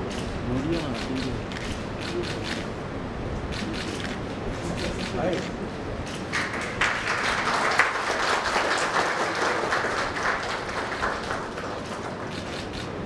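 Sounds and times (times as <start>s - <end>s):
audience applauding: 6.3s - 12.8s.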